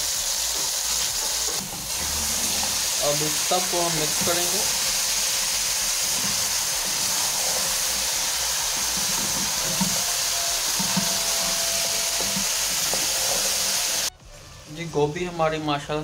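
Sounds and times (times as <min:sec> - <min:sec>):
vegetables sizzling in hot oil: 0:00.0 - 0:14.8
spoon knocking on pot: 0:08.8 - 0:13.6.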